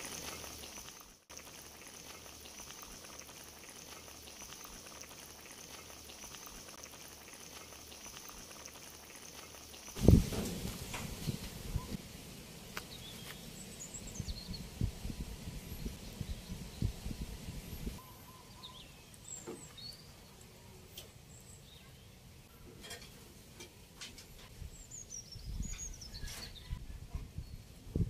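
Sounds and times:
birds chirping: 0:12.7 - 0:20.5.

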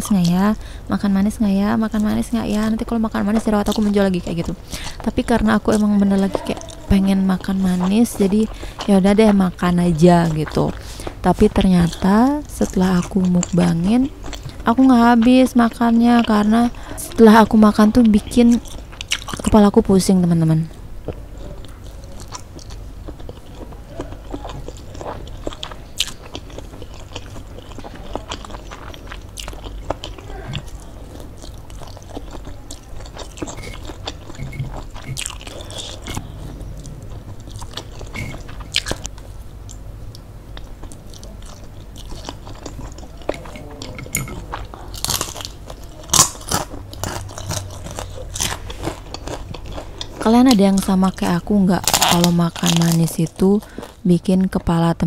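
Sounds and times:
person chewing and slurping noodles: 0:05.7 - 0:15.3, 0:21.1 - 0:39.8, 0:40.5 - 0:52.9
crunchy bite: 0:40.8 - 0:50.9, 0:51.8 - 0:53.2.

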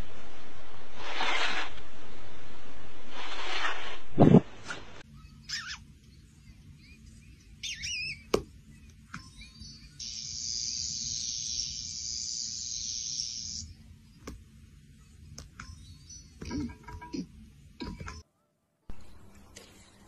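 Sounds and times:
steady high hiss: 0:09.8 - 0:14.2.

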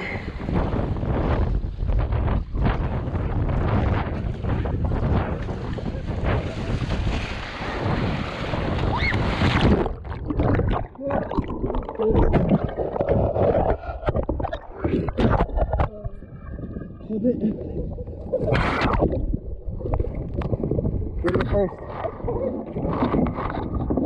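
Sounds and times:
choppy ocean waves: 0:00.0 - 0:24.0
underwater bubbling and sloshing: 0:00.0 - 0:24.0
wind buffeting microphone: 0:00.0 - 0:24.0
kayak capsizing splash: 0:00.4 - 0:15.4.

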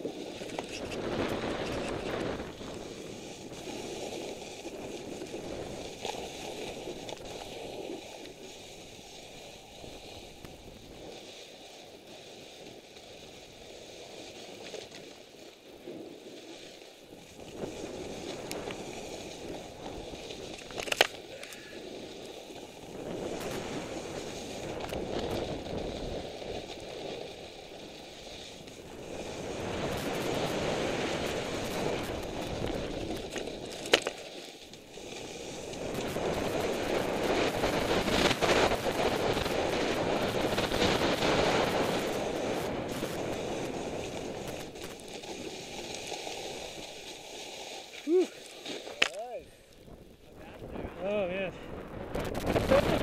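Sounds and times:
wind on microphone: 0:00.0 - 0:08.3, 0:21.6 - 0:33.8, 0:34.9 - 0:45.5, 0:49.3 - 0:53.0
ski edges scraping snow: 0:00.0 - 0:53.0.

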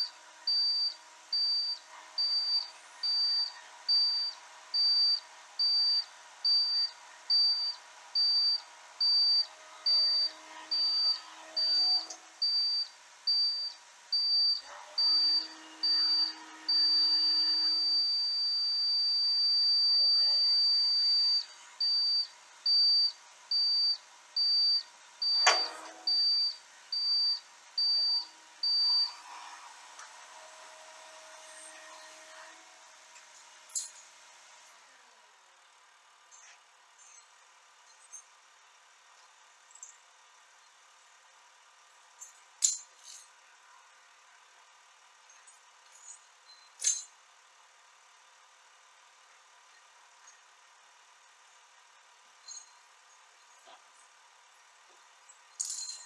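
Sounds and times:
electronic warning beeps: 0:00.5 - 0:29.2.

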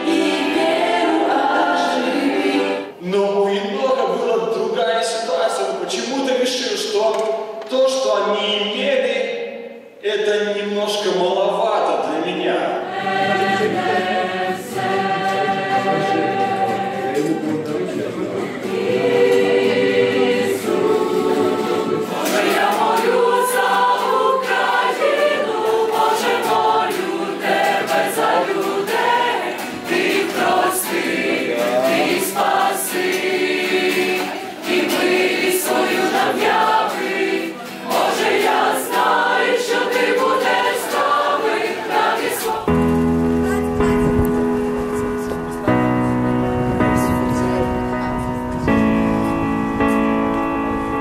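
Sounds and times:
choir singing a hymn: 0:00.0 - 0:03.0, 0:12.6 - 0:43.6.

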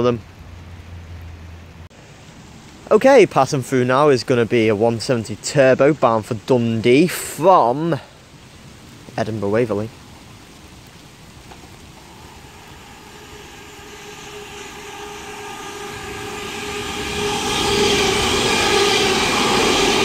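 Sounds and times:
diesel train passing: 0:11.1 - 0:20.0.

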